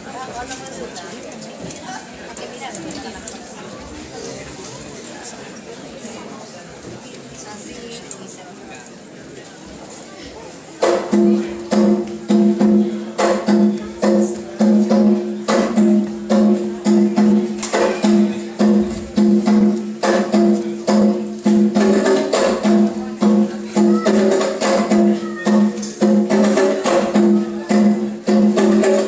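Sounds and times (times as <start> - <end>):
drums: 9.7 - 29.0.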